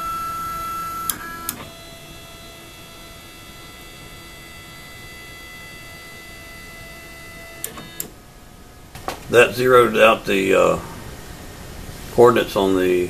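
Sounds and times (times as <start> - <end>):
stepper motors whining: 0.0 - 8.2.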